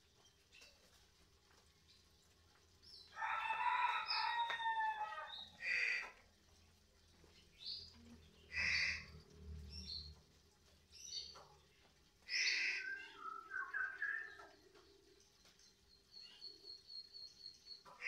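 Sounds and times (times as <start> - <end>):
songbird calling: 12.3 - 15.0.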